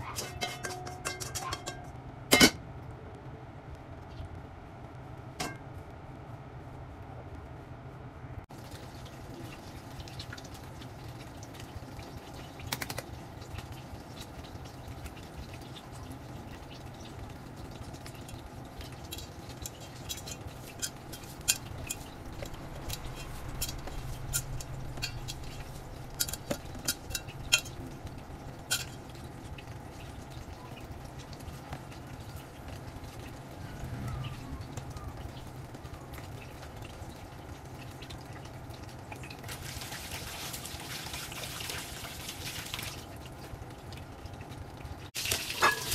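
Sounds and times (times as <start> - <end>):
hands mixing rice in metal bowl: 0.0 - 1.8, 17.9 - 30.4
low steady hum: 0.0 - 45.9.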